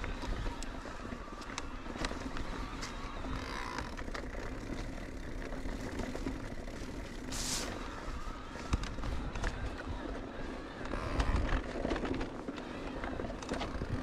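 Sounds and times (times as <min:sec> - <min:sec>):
bike clicks and knocks: 0:00.0 - 0:14.0
tyres rolling over dirt and stones: 0:00.0 - 0:14.0
wind rumble on microphone: 0:07.1 - 0:14.0.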